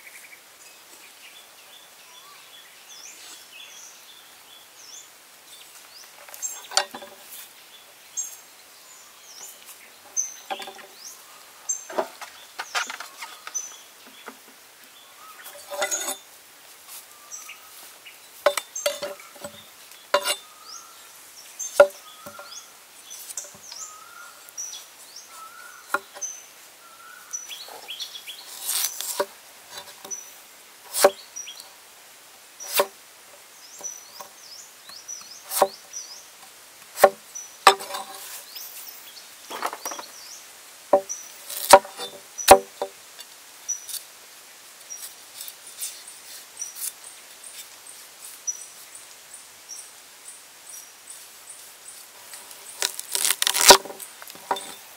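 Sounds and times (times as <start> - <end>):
birds chirping: 0.0 - 16.3, 17.0 - 31.8, 32.6 - 42.9, 45.9 - 54.9
cleaver chopping on wooden board: 20.2 - 20.4, 30.9 - 31.2, 37.0 - 38.2, 41.0 - 43.0.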